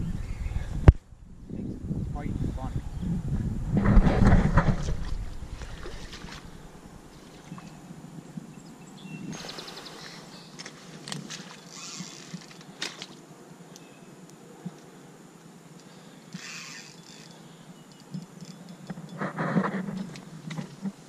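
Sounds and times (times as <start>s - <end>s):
fishing reel clicking: 11.7s - 12.4s, 16.4s - 17.4s.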